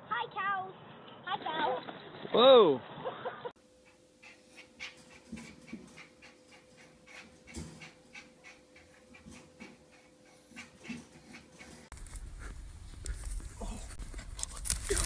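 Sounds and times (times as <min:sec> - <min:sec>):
small dog panting: 0:03.8 - 0:13.3.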